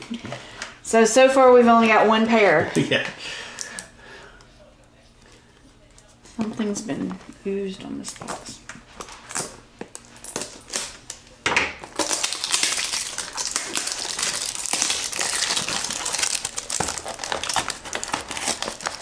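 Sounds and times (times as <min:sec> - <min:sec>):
cardboard packaging crinkling: 0:08.0 - 0:11.2, 0:11.8 - 0:19.0.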